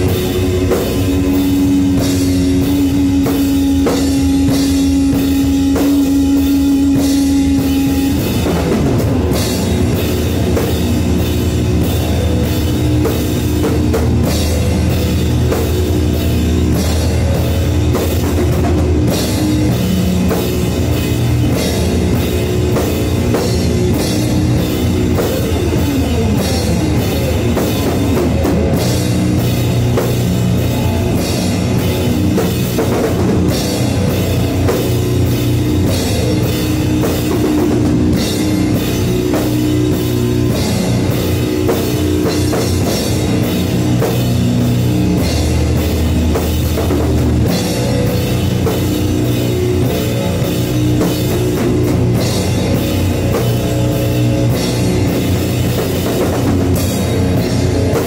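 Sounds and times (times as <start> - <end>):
heavy rock band playing: 0.0 - 58.0.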